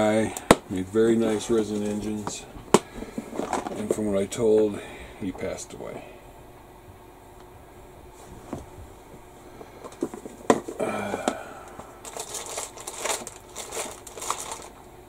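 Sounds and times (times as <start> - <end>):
items knocking and clicking: 1.8 - 4.0, 9.6 - 14.7
packaging crinkling: 11.6 - 14.9.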